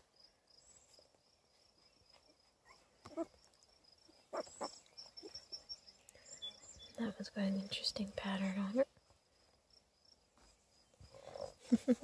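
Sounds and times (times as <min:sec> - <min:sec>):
crickets chirping: 0:00.0 - 0:12.0
puppy squeaking: 0:04.3 - 0:05.8.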